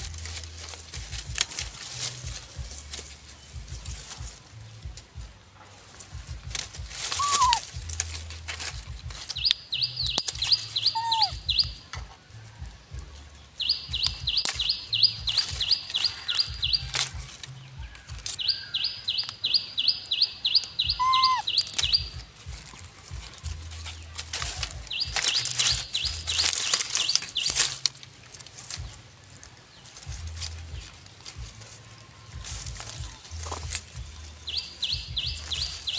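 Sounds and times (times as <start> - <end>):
dry leaves rustling: 0.0 - 35.9
bird whistled calls: 7.1 - 7.7, 9.4 - 11.8, 18.4 - 22.2
bird singing rapid high notes: 7.1 - 7.8, 9.4 - 11.8, 18.4 - 22.3.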